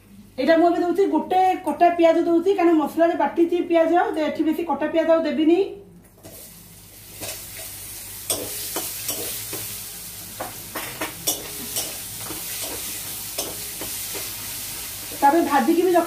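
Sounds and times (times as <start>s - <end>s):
onions sizzling in oil: 6.2s - 16.0s.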